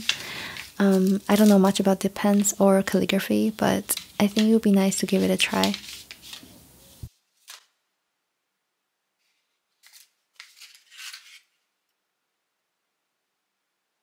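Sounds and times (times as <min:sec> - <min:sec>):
paper sleeve rustling: 0:00.0 - 0:03.0, 0:03.7 - 0:07.8, 0:09.2 - 0:11.6.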